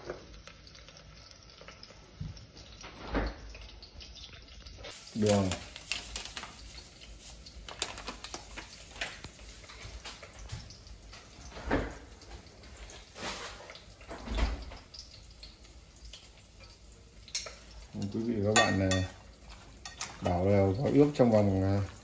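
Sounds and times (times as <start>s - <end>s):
sugar pouring: 4.8s - 9.8s
plastic bag crinkling: 4.9s - 10.4s.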